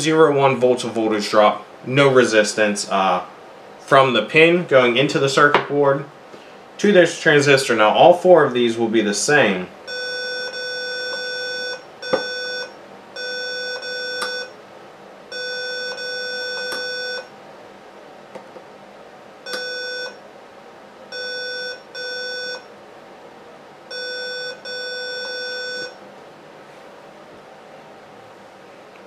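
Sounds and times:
multimeter beeping: 0:09.9 - 0:14.6, 0:15.3 - 0:17.3, 0:19.4 - 0:20.2, 0:21.1 - 0:22.7, 0:23.9 - 0:26.0.

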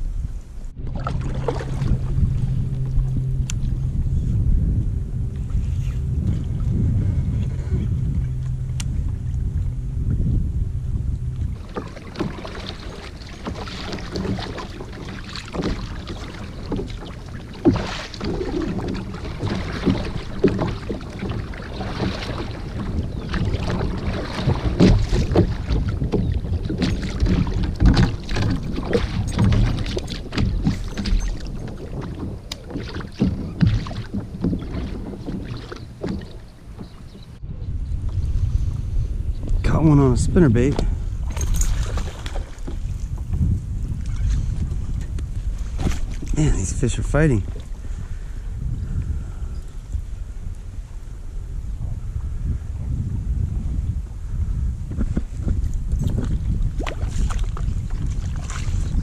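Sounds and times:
wind on microphone: 0:00.0 - 0:59.0
kayak paddle splashing in water: 0:00.8 - 0:04.0, 0:08.0 - 0:37.4, 0:41.0 - 0:49.2, 0:54.8 - 0:59.0
paddle knocks: 0:11.0 - 0:37.4, 0:39.7 - 0:47.8.

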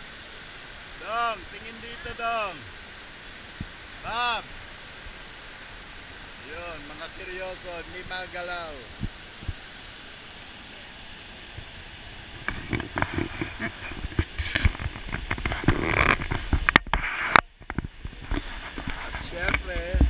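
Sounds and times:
river rapids and waterfall rushing: 0:00.0 - 0:20.0
wind on camera microphone: 0:07.9 - 0:09.7, 0:11.4 - 0:20.0.

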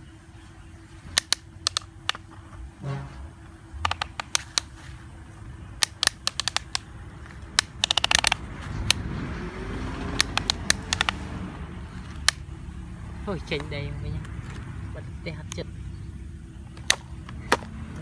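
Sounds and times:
hard plastic toy clicks: 0:01.2 - 0:02.2, 0:03.8 - 0:04.8, 0:05.8 - 0:09.1, 0:10.1 - 0:11.4, 0:12.0 - 0:12.5, 0:16.7 - 0:17.8.

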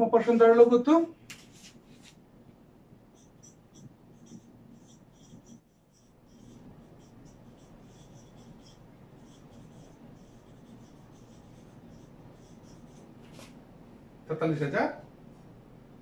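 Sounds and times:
marker scratching on whiteboard: 0:03.1 - 0:13.6.

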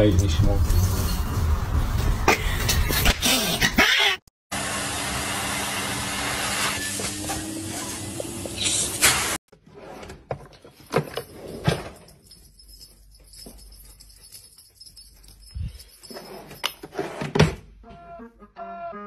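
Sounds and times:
vacuum cleaner running: 0:04.5 - 0:09.4.

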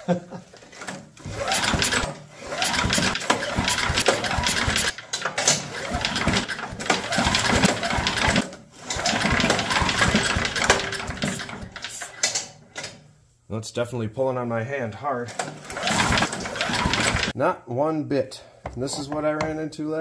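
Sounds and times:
engine pull-start cranking: 0:00.7 - 0:12.4, 0:15.4 - 0:17.3.

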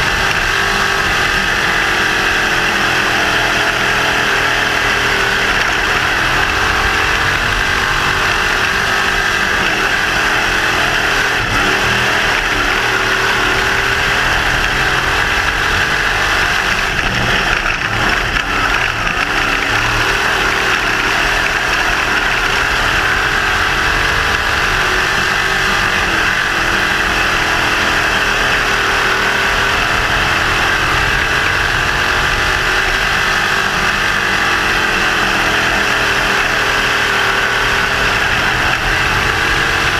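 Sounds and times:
race car engine running hard: 0:00.0 - 0:39.9.

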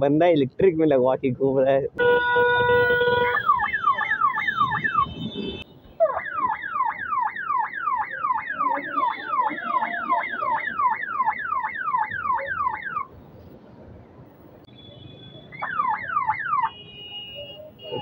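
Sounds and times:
siren yelping: 0:02.9 - 0:13.1, 0:15.4 - 0:16.8.

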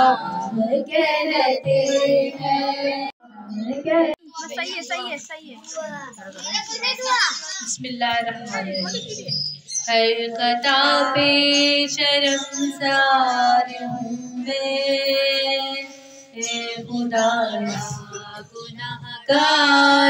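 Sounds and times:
woman singing devotional song: 0:00.0 - 0:04.2, 0:09.9 - 0:20.0.

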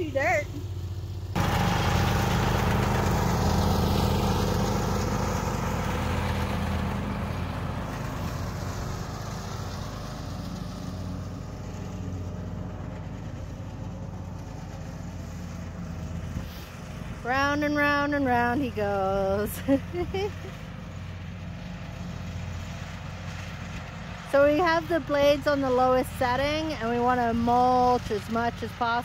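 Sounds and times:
riding lawn mower running: 0:00.0 - 0:29.0.

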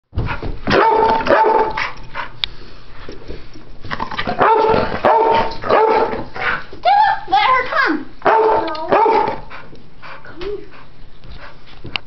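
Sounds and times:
dogs barking in play: 0:00.6 - 0:02.4, 0:04.1 - 0:06.8, 0:08.2 - 0:09.7.

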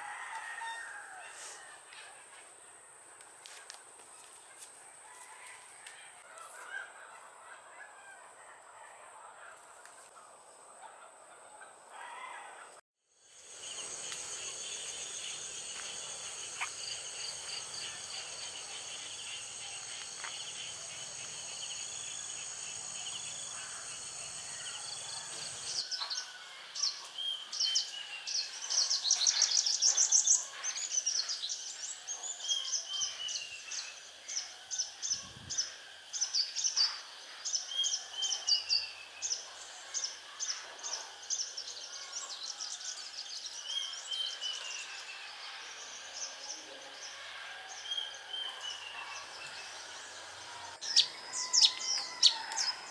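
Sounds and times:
high-pitched insect drone: 0:13.2 - 0:25.8
sharp bird calls: 0:47.2 - 0:52.9.

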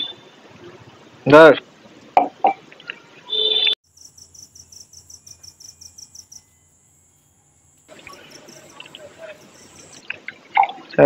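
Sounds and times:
steady high trill: 0:03.8 - 0:10.0
crickets chirping: 0:03.8 - 0:10.2.

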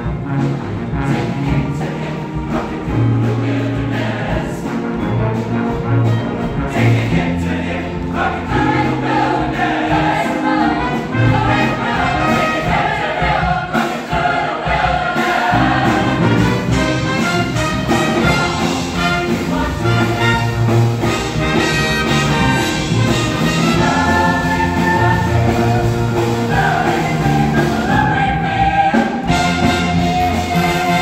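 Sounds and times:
steady drum beat: 0:00.0 - 0:31.0
choir singing pop song: 0:01.0 - 0:05.0, 0:06.5 - 0:31.0
bass line: 0:15.5 - 0:31.0.

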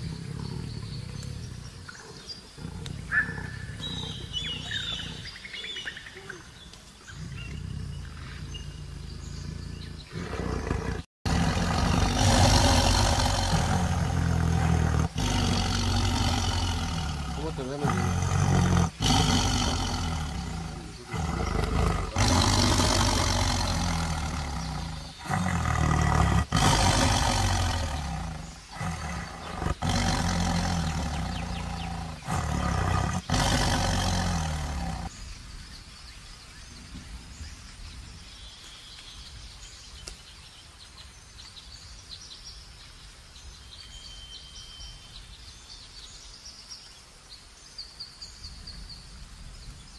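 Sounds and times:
big cat roaring and growling: 0:00.0 - 0:06.4, 0:07.0 - 0:35.1
faint bird chirps: 0:00.0 - 0:10.9, 0:34.0 - 0:49.9.

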